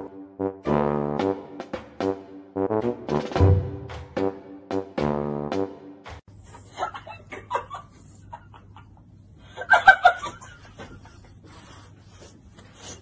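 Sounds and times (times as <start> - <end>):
woman giggling: 6.5 - 11.3.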